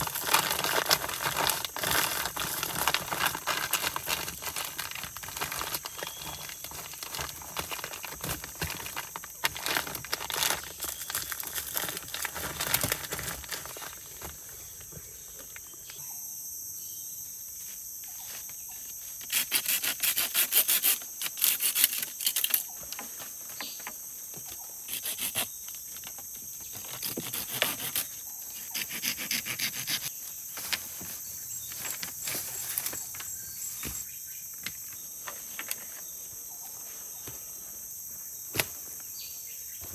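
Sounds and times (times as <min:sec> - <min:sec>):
rustling and knocking of wood: 0:00.0 - 0:15.9, 0:21.2 - 0:24.8, 0:30.0 - 0:37.6, 0:38.5 - 0:39.2
insects chorus: 0:00.0 - 0:39.9.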